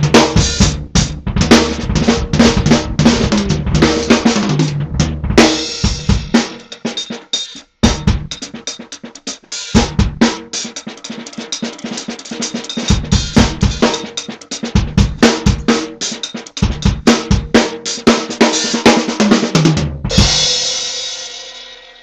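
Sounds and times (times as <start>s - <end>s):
snare and bass drum solo: 0.0s - 22.0s
cymbal crash ringing: 20.6s - 22.0s.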